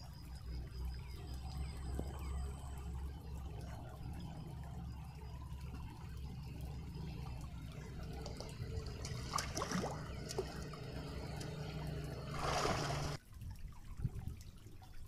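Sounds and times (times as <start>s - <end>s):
low rumble: 0.0s - 13.2s
water splashing in stream: 7.4s - 14.9s.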